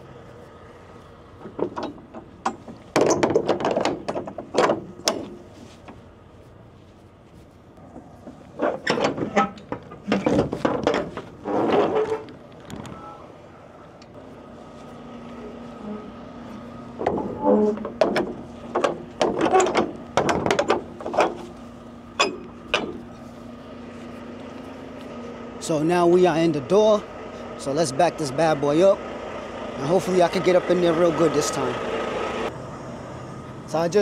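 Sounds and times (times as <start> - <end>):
metal door hardware clanking: 1.4 - 5.4, 8.6 - 12.3, 17.0 - 21.5, 22.2 - 23.0
steady hum: 3.8 - 27.8.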